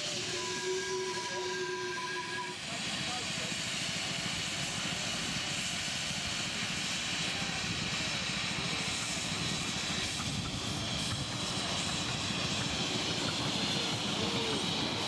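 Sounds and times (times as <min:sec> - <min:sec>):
model train rumbling: 0:00.0 - 0:15.0
steam hissing: 0:00.0 - 0:15.0.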